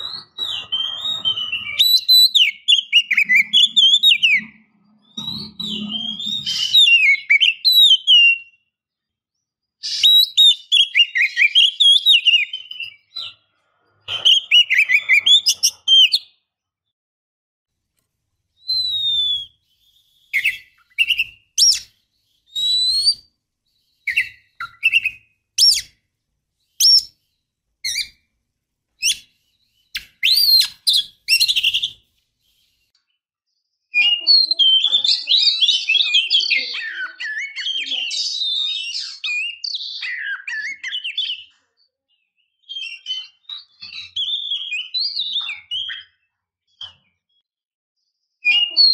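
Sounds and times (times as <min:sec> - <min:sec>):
bird whistled warbling: 0:00.0 - 0:08.5, 0:14.2 - 0:16.4, 0:18.6 - 0:26.0, 0:26.8 - 0:27.1, 0:27.8 - 0:28.2, 0:29.0 - 0:32.8
sharp whistled bird notes: 0:00.0 - 0:08.6, 0:09.8 - 0:13.2, 0:14.1 - 0:16.4, 0:18.6 - 0:26.0, 0:26.6 - 0:28.2, 0:29.0 - 0:32.9.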